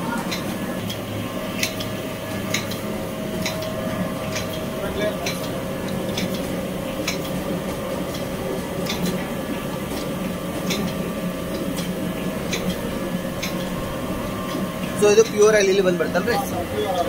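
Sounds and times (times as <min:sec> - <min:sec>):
machinery humming: 0:00.0 - 0:17.0
sharp machine clicks: 0:01.6 - 0:02.8, 0:03.4 - 0:03.7, 0:04.3 - 0:07.4, 0:10.6 - 0:11.0, 0:12.5 - 0:12.8.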